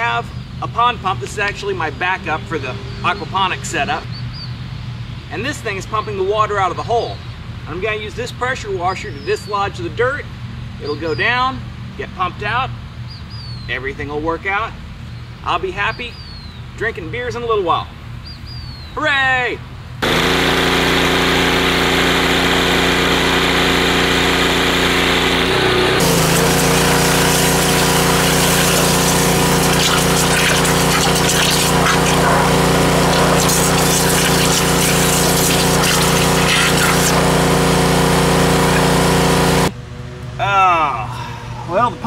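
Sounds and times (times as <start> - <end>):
pressure washer engine humming: 20.0 - 39.7
high-pressure spray hissing: 25.3 - 39.7.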